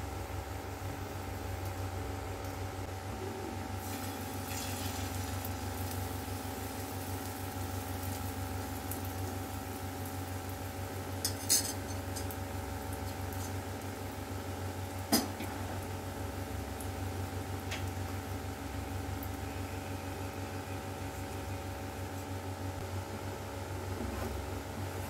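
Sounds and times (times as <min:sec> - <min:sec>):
steady hum: 0:00.0 - 0:25.0
egg sizzling on a griddle: 0:03.6 - 0:22.9.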